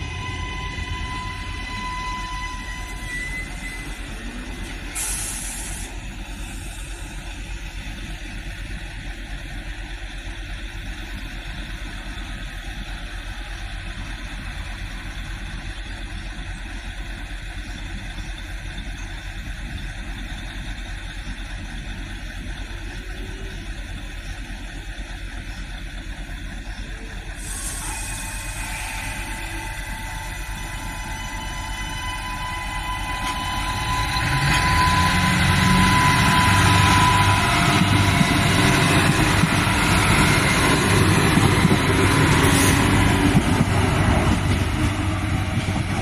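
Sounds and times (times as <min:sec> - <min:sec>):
diesel railcar engine idling: 0:00.0 - 0:46.0
bright hiss: 0:04.9 - 0:07.4, 0:27.4 - 0:30.2.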